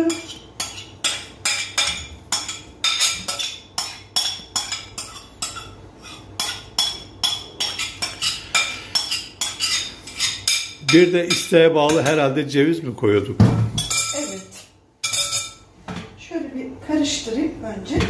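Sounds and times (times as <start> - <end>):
metal spoon clinking in bowl: 13.8 - 15.6.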